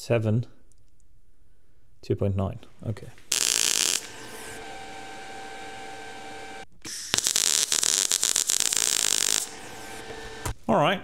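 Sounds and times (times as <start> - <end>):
steady hum: 3.1 - 10.6
welding arc crackling: 3.2 - 10.6.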